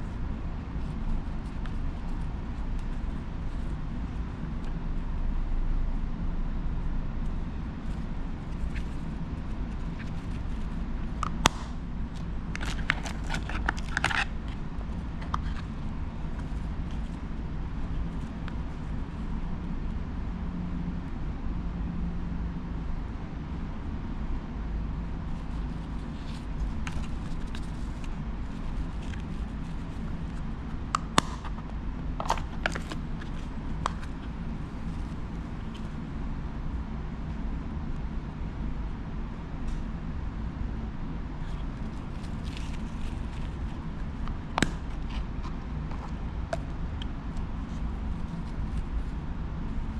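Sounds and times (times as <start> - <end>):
steady low hum: 0.0 - 49.9
plastic box snap: 11.2 - 11.8, 31.0 - 31.5.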